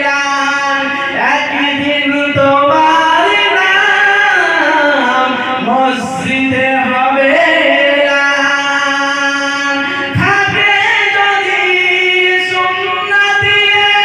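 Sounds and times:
man singing: 0:00.0 - 0:14.0.

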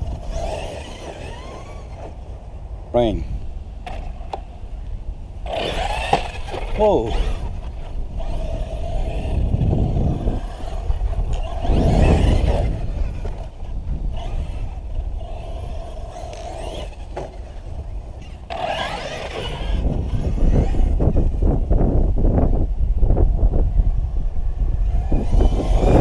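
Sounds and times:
electric motor whining: 0:00.0 - 0:02.4, 0:05.4 - 0:22.6, 0:24.6 - 0:26.0.

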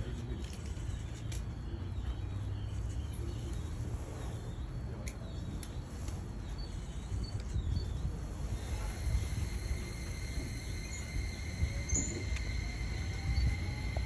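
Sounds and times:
train low rumble: 0:03.1 - 0:14.0
high-pitched hiss: 0:08.3 - 0:14.0.

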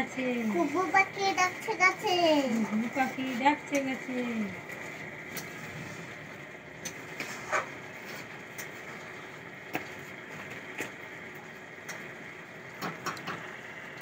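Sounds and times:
laminated charts tapping and clicking: 0:02.2 - 0:05.6, 0:06.8 - 0:12.1, 0:12.8 - 0:14.0.

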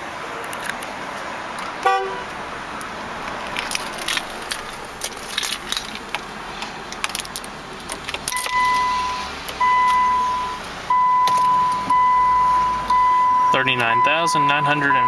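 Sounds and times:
car keys jangling: 0:03.2 - 0:06.3, 0:06.9 - 0:08.9
dashboard warning chime beeps: 0:08.4 - 0:15.0.

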